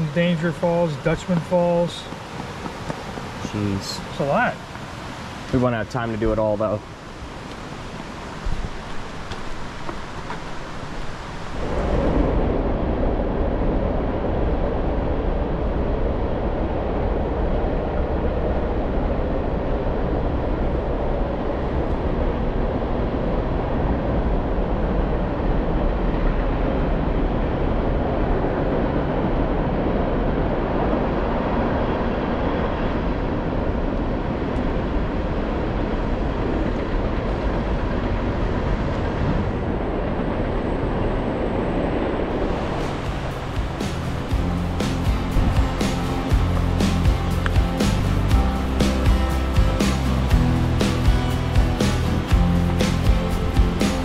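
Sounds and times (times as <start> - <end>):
rushing cascading water: 0.0 - 12.5, 42.3 - 54.0.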